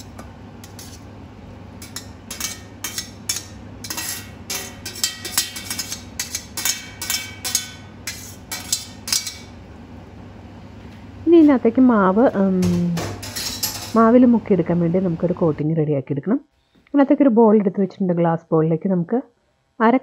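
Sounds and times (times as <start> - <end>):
low steady hum: 0.0 - 20.0
dishes and utensils clinking: 1.8 - 9.6, 12.6 - 14.1.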